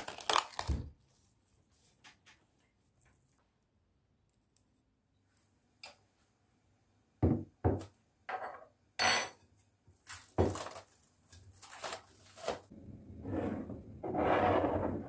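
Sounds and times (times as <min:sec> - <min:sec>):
glass dish scraping across counter: 0:13.2 - 0:15.0.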